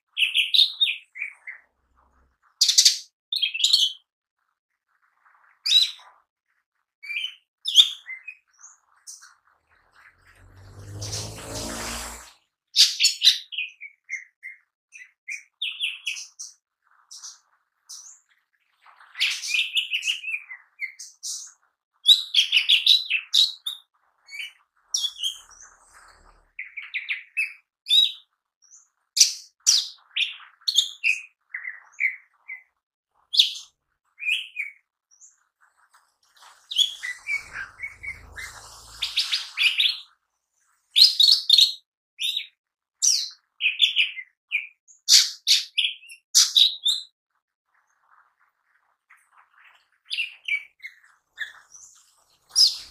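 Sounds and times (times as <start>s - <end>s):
bird singing chirps and trills: 7.0s - 12.3s, 19.2s - 32.7s, 36.5s - 40.2s, 50.1s - 52.9s.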